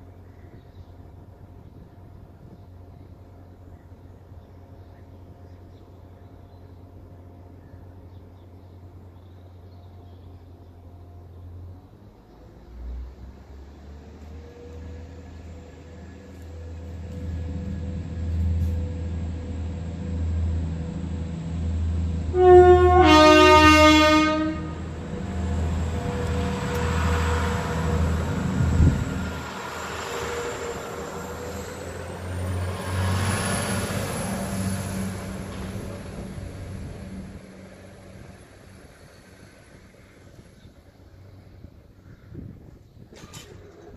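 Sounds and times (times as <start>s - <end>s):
diesel train engine rumble: 0.0s - 43.9s
train passing over crossing: 10.3s - 42.0s
two-tone train horn: 21.8s - 25.0s.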